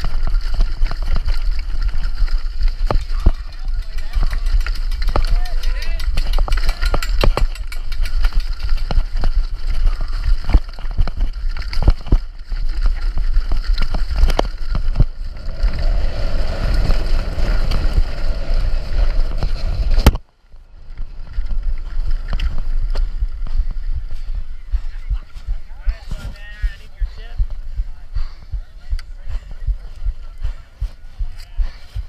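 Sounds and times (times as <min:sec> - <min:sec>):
mountain bike clattering over rocks: 0:00.0 - 0:20.2
tyres rolling on dirt: 0:00.0 - 0:28.1
wind rumble on microphone: 0:00.0 - 0:32.0.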